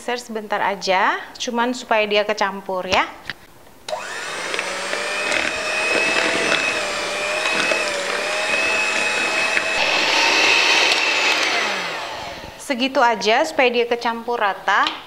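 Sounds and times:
electric hand mixer whining: 3.9 - 12.8.

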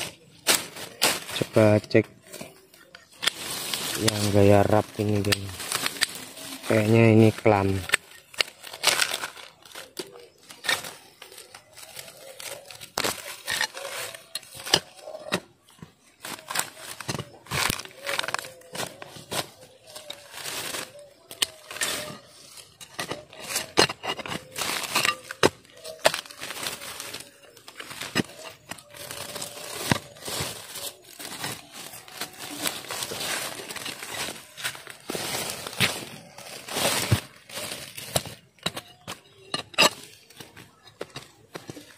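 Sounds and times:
dry leaves and twigs crunching: 0.0 - 41.9.

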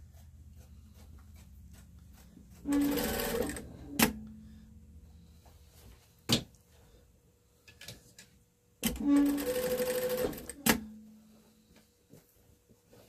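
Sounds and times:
sewing machine low hum: 2.5 - 4.3, 8.8 - 11.0.

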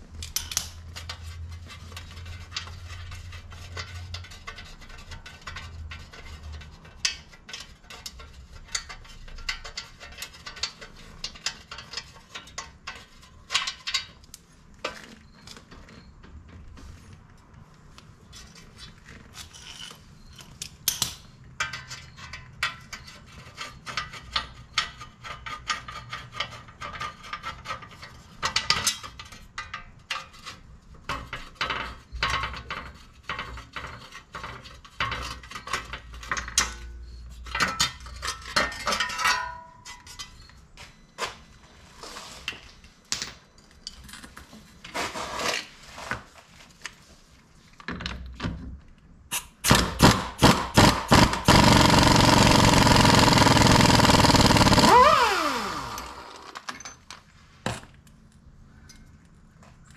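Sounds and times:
metal tools clinking: 51.8 - 57.2.

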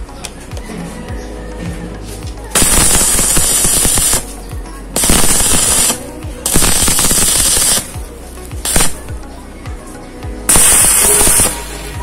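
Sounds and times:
welding arc crackling and sizzling: 2.5 - 4.4, 5.0 - 8.0, 8.6 - 9.1, 10.5 - 12.0.

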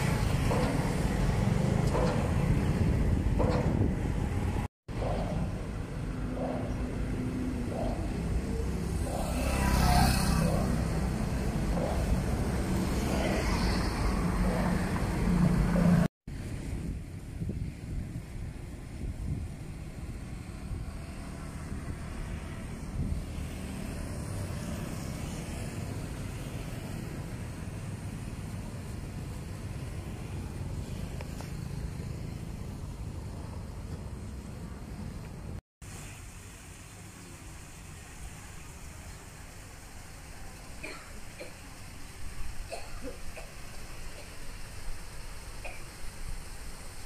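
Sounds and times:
vehicle passing close by: 0.0 - 16.1
road traffic rumble: 0.0 - 47.0.

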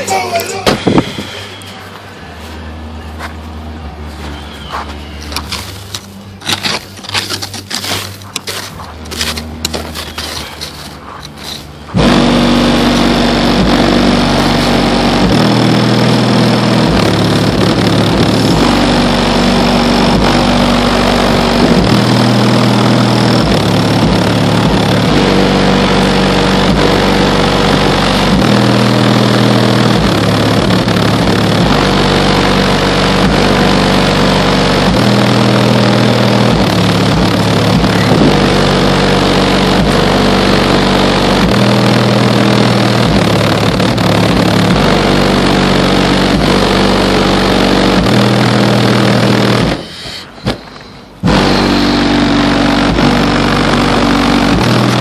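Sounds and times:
bass-heavy car audio music: 0.0 - 55.0
scraping and handling noise: 4.1 - 12.0.

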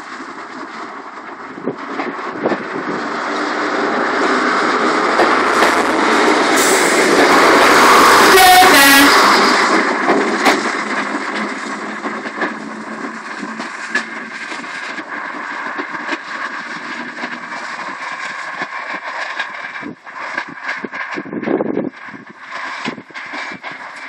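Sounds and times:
diesel train passing: 0.0 - 21.1
high horn-like tone: 6.6 - 9.6.

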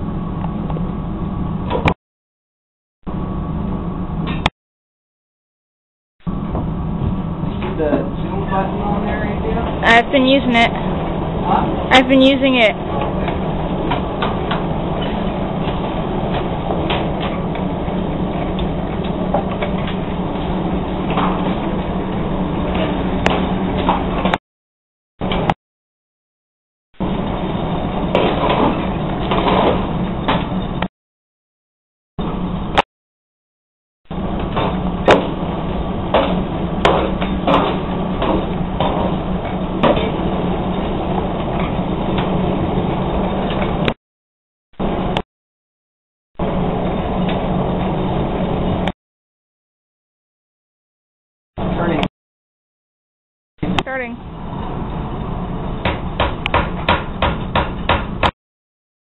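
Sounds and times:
steady low hum: 0.0 - 2.0, 3.0 - 4.5, 6.2 - 24.4, 27.0 - 30.9, 34.1 - 44.0.

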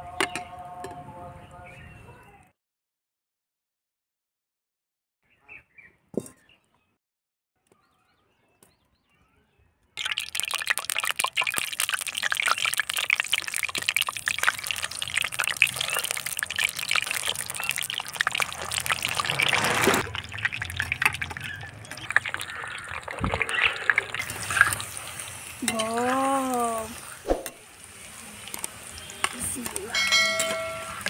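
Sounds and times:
food deep-frying in hot oil: 10.0 - 31.0.

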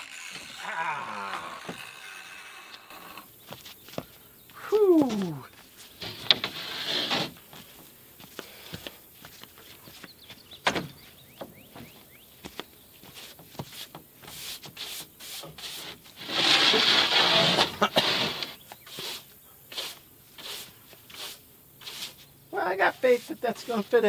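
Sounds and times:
short scrape of wood: 6.0 - 7.7, 13.2 - 22.2.

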